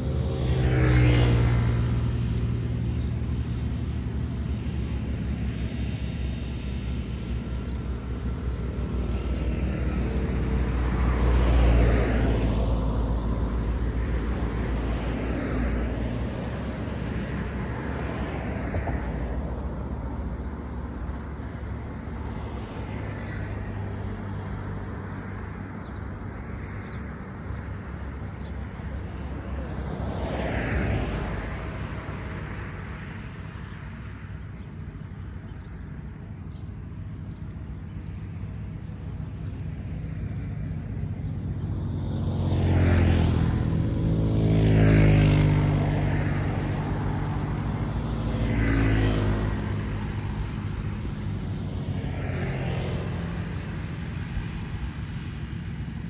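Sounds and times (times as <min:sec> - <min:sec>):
traffic rumble: 0:00.0 - 0:56.0
vehicles passing: 0:00.0 - 0:56.0.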